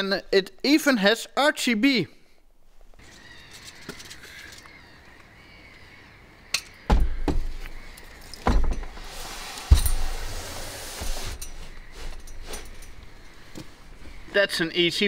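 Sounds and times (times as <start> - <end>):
heavy thuds: 6.9 - 7.8
metal frame knocking and clanking: 8.4 - 9.0
metal scraping across carpet: 8.9 - 13.0.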